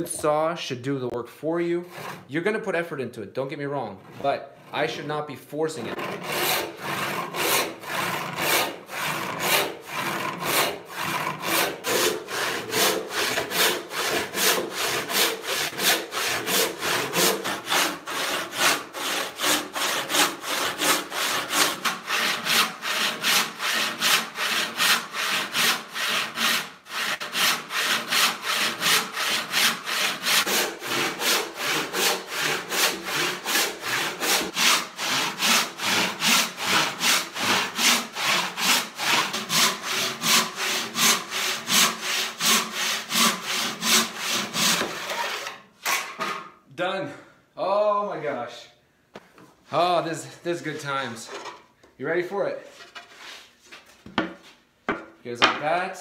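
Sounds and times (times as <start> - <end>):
handsaw sawing wood: 1.8 - 2.3, 5.8 - 46.5.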